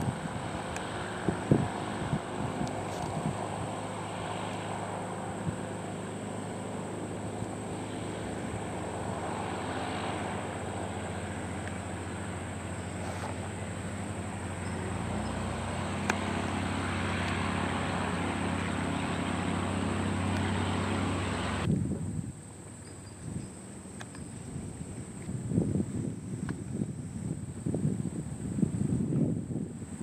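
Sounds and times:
propeller airplane engine: 0.0s - 21.7s.

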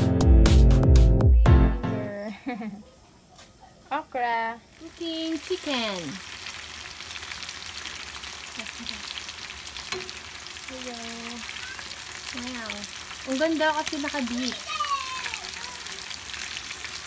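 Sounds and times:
meat deep-frying in hot oil: 4.2s - 17.0s.

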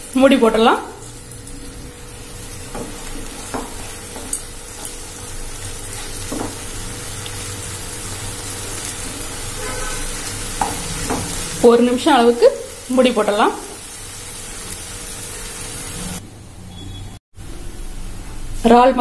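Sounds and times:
food sizzling in a pan: 0.0s - 16.2s
spatula knocking against pan: 2.7s - 4.9s.

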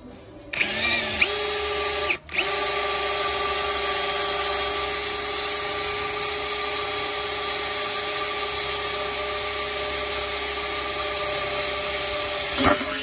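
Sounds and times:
electric drill boring into metal: 0.6s - 13.0s.

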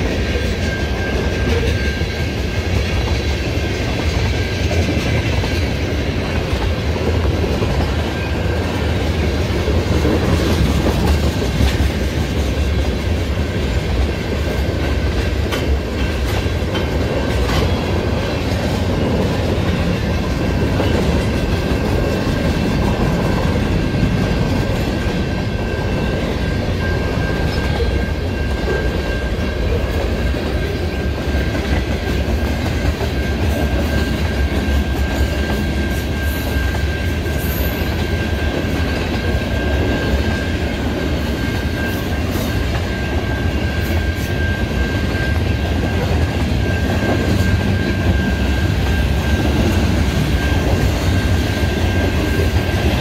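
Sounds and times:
clickety-clack over rail joints: 0.0s - 53.0s
train wheels rumbling: 0.0s - 53.0s.

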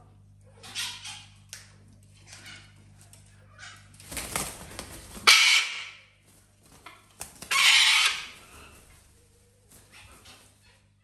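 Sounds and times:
wings flapping: 3.9s - 5.6s, 6.2s - 10.7s
parrot screeching: 5.2s - 5.9s, 7.5s - 8.4s.

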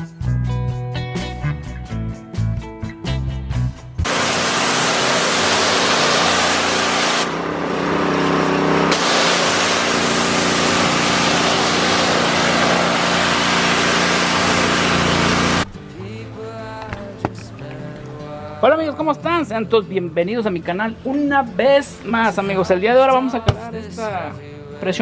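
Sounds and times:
guitar tune: 0.0s - 25.0s
water jet hissing on concrete: 4.0s - 7.3s, 8.9s - 15.6s
pressure washer engine: 4.0s - 15.7s.

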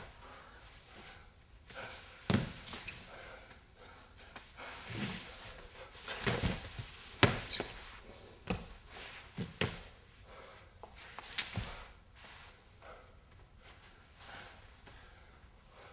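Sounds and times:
sneaker squeak: 7.2s - 7.8s.

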